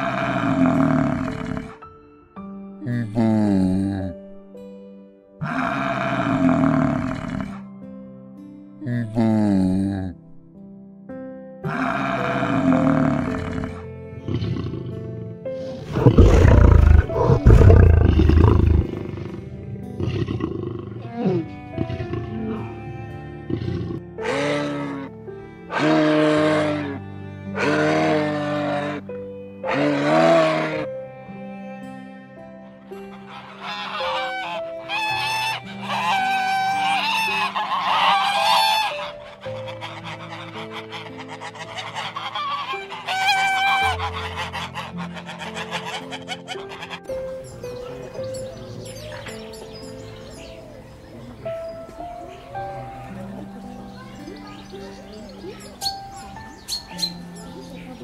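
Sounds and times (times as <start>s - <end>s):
lion roaring: 0.0s - 1.8s, 5.4s - 7.6s, 11.7s - 22.6s, 29.7s - 30.9s
background music: 0.0s - 58.0s
geese honking: 21.0s - 25.1s, 25.7s - 29.0s, 33.1s - 58.0s.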